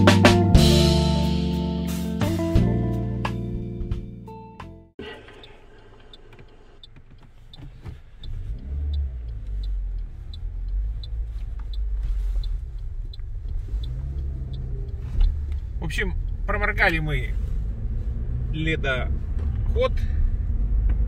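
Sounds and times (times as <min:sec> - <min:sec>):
car engine and road rumble: 0:00.0 - 0:21.0
light regular ticking: 0:05.0 - 0:18.3.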